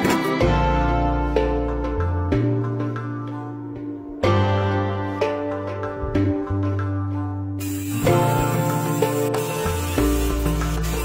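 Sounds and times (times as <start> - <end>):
background music: 0.0 - 11.0
low bass line: 0.4 - 9.0.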